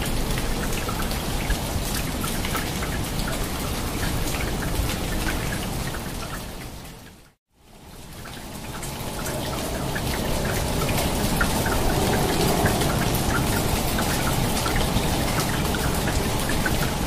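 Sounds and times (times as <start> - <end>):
rain falling: 0.0 - 17.0
raindrops ticking: 0.0 - 17.0.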